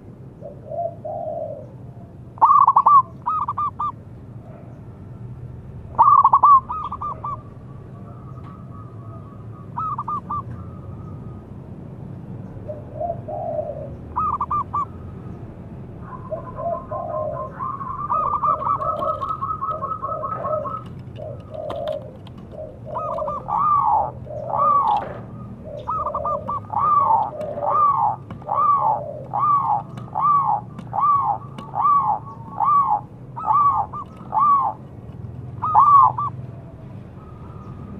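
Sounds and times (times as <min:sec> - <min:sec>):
dove cooing: 0:00.4 - 0:04.6, 0:05.9 - 0:11.4, 0:12.6 - 0:15.1, 0:16.0 - 0:37.9
dove stuttering trill: 0:02.4 - 0:04.0, 0:05.9 - 0:07.6, 0:09.7 - 0:11.1, 0:13.0 - 0:15.0, 0:16.0 - 0:36.4.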